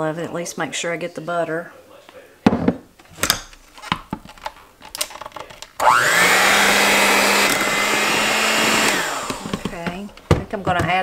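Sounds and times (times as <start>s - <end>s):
electric hand mixer whining: 5.8s - 9.8s.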